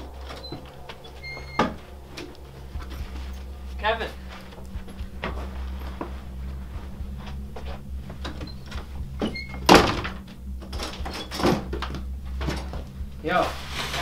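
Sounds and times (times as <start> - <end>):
steady low hum: 0.0 - 14.0
door thudding: 8.2 - 12.9.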